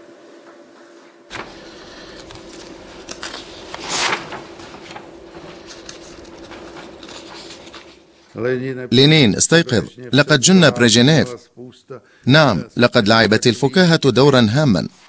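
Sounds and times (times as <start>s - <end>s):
low room hum: 0.0s - 15.0s
paper rustling: 1.3s - 8.4s.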